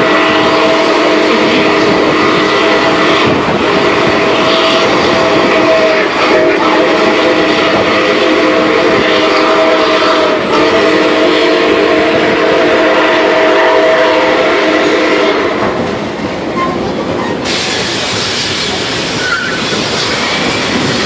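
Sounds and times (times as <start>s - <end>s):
steam locomotive whistle: 0.0s - 15.7s
train rolling on rails: 0.0s - 21.0s.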